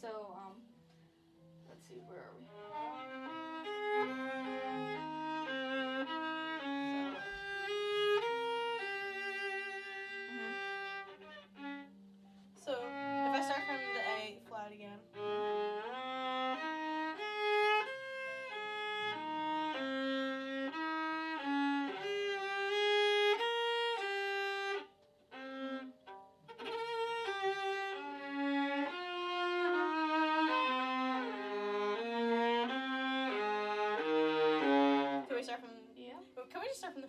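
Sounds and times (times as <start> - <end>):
bowed violin melody: 1.4 - 37.0.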